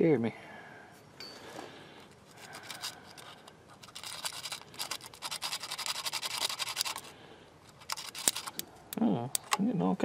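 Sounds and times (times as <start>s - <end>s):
abrasive strip rasping on metal: 2.4s - 7.1s.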